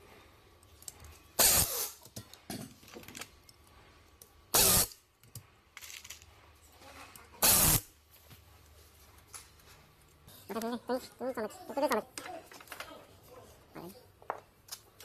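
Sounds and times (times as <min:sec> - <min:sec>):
loud hissing bursts: 0:01.4 - 0:02.0, 0:04.5 - 0:04.9, 0:07.4 - 0:07.9.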